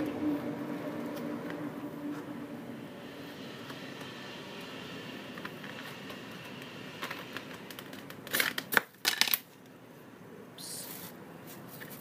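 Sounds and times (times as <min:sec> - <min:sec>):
plastic crackling and rustling: 0:05.4 - 0:09.7
plastic packaging clicks: 0:07.1 - 0:09.7.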